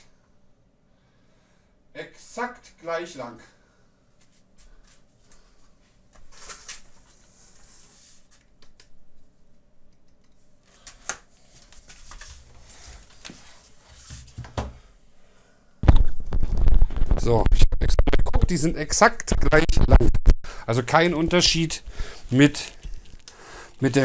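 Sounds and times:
rustling and scraping of parts: 4.2 - 8.5, 10.6 - 14.8, 21.9 - 24.0.

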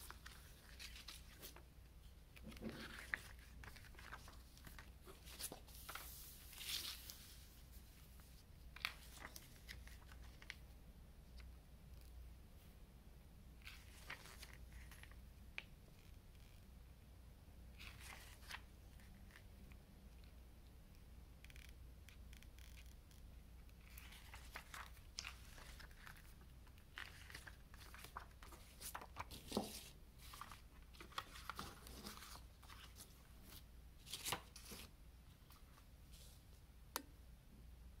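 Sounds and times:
paper pages rustling: 0.0 - 1.6, 2.4 - 10.6, 13.6 - 15.2, 17.8 - 19.5, 23.8 - 34.9
paper crinkles: 2.4 - 7.3, 23.8 - 34.9.

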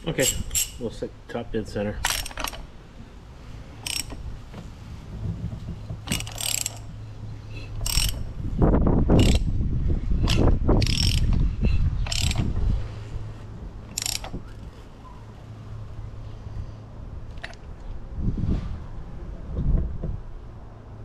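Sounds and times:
ratchet wrench clicking: 0.2 - 0.8, 2.0 - 2.6, 3.8 - 4.2, 6.0 - 6.9, 7.7 - 8.3, 9.2 - 9.5, 10.2 - 11.4, 12.0 - 12.5, 13.9 - 14.4.

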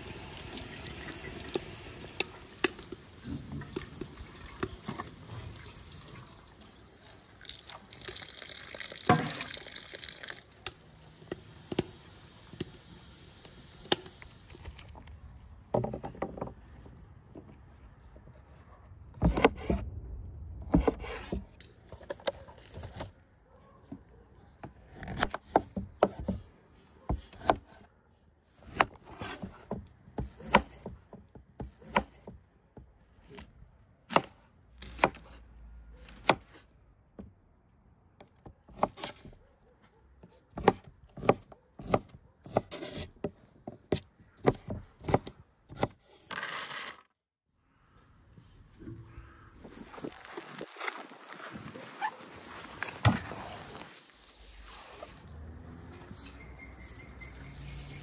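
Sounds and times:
knife slicing fruit on wooden board: 28.6 - 31.0, 31.6 - 32.4, 40.6 - 46.0.

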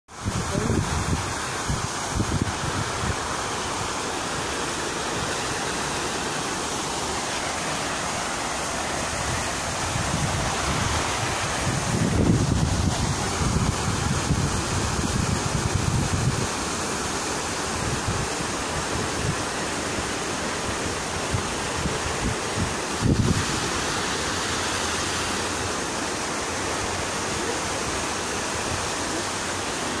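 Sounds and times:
wind rumbling on microphone: 0.1 - 4.0, 9.0 - 25.8
fountain water splashing: 0.1 - 30.0.

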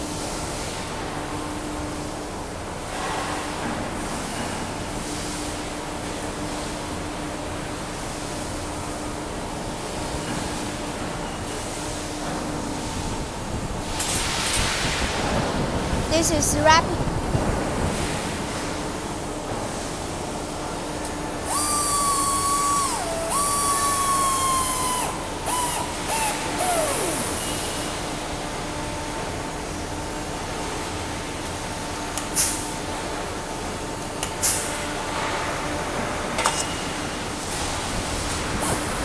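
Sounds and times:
factory machinery hum: 0.0 - 39.0
short sharp air bursts: 21.4 - 27.9
pneumatic tool whine and hiss: 21.4 - 28.0.

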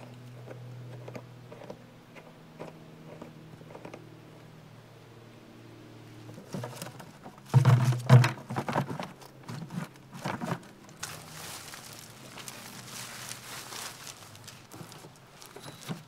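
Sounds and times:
hose and plastic bucket clattering: 6.3 - 16.0
plastic rug rustling: 6.4 - 16.0.

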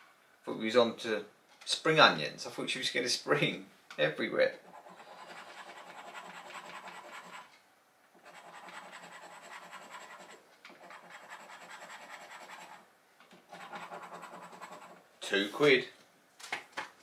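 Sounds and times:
scratchcard scraping: 4.6 - 7.5, 8.2 - 15.0.

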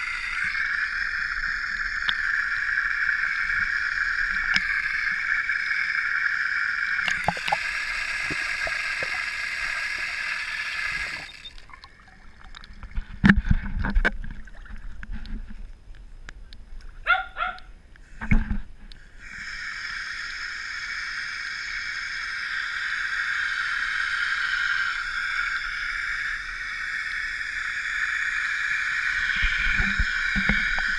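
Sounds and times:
steady high hiss: 0.0 - 12.3.

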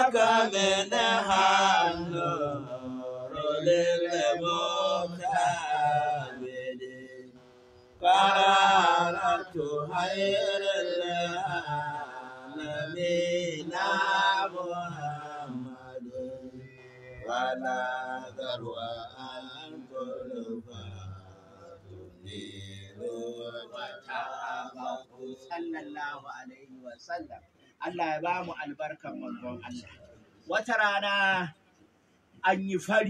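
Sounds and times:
man chanting: 8.0 - 31.5, 32.4 - 33.0.

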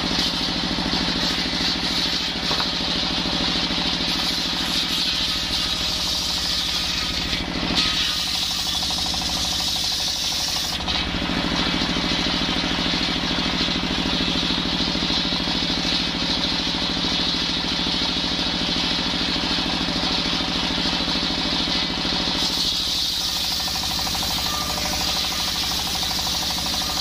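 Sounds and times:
circular saw ripping wood: 0.0 - 14.6, 21.8 - 27.0
diesel engine running: 0.0 - 27.0.

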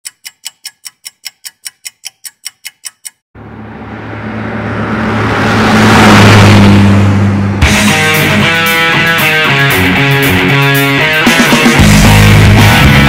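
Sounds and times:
clock-like ticking: 0.0 - 3.2
rushing swell: 3.4 - 9.3.

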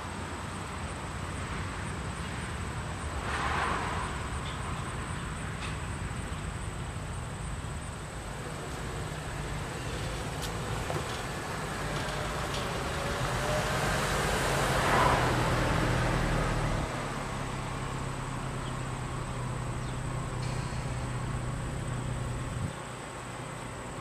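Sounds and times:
car passing: 0.0 - 24.0
steady low hum: 17.8 - 24.0.

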